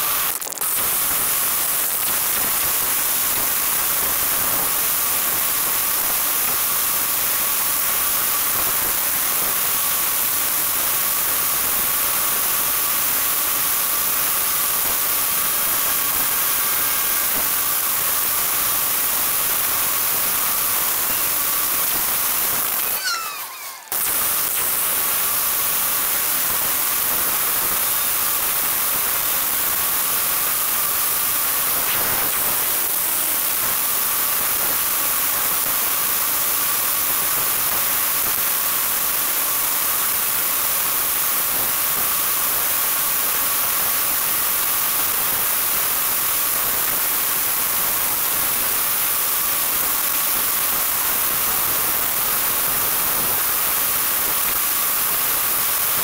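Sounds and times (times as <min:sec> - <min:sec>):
faint electric whine: 0:00.0 - 0:34.8.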